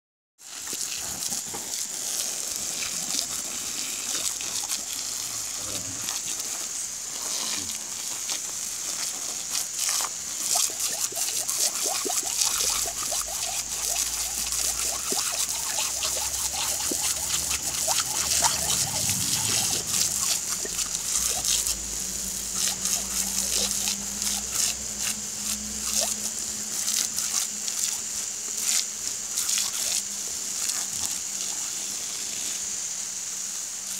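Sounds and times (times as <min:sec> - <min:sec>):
dog biting at water jet: 0:00.4 - 0:32.2
hose spraying water: 0:00.4 - 0:33.9.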